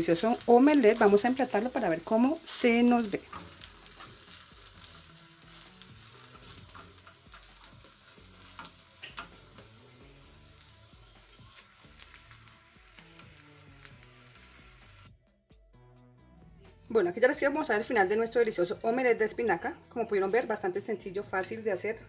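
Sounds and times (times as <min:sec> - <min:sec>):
omelette sizzling in butter: 0:00.0 - 0:15.1.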